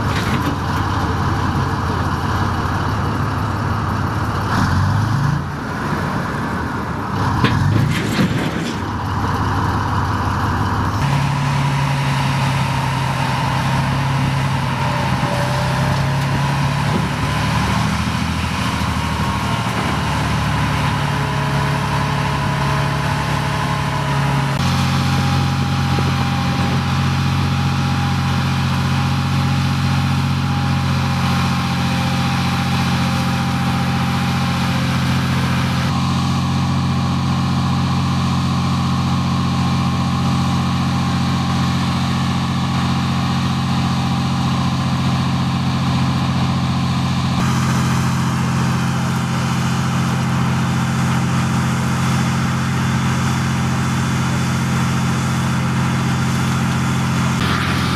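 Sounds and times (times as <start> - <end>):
tracked vehicle engine running: 0.0 - 57.9.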